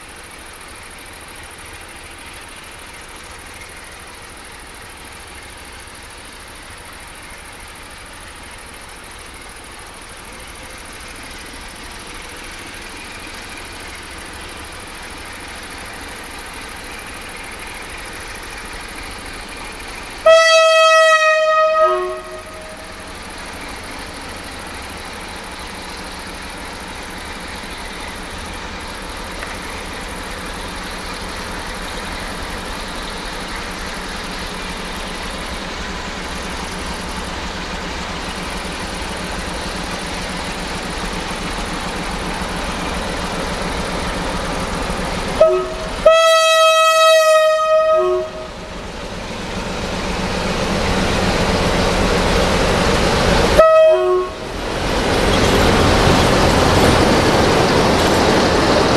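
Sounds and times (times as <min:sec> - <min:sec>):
diesel locomotive engine: 0:00.0 - 0:58.9
train horn: 0:20.2 - 0:23.0, 0:45.4 - 0:48.5, 0:53.6 - 0:54.5.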